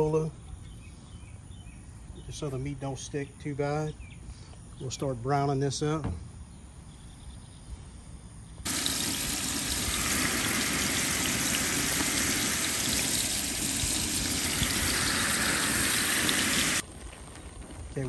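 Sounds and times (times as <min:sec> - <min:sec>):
meat sizzling in hot oil: 0:08.7 - 0:16.8.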